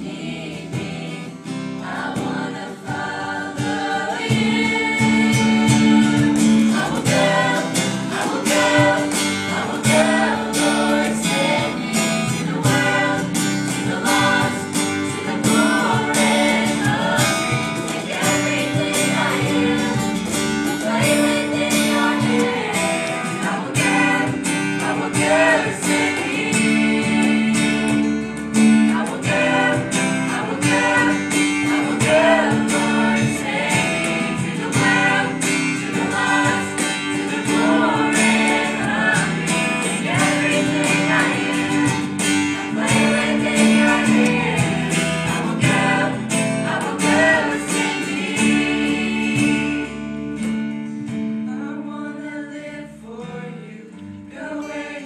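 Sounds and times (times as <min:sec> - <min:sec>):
youth choir singing: 0:00.0 - 0:50.4, 0:51.5 - 0:55.0
electric guitars: 0:00.0 - 0:51.5
strummed acoustic guitar: 0:00.0 - 0:55.0.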